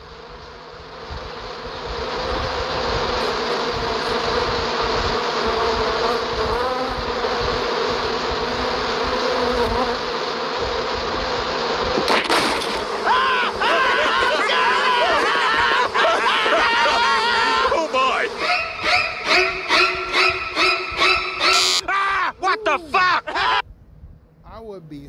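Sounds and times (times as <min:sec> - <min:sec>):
cartoon bees buzzing: 0:00.0 - 0:21.9
sharp crash: 0:12.0 - 0:13.1
person yelling: 0:13.0 - 0:18.6, 0:21.4 - 0:23.6.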